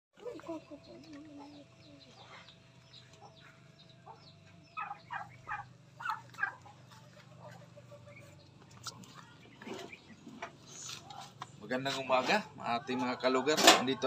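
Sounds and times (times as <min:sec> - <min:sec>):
poultry calling: 0:00.2 - 0:11.3
low steady hum: 0:00.2 - 0:11.6.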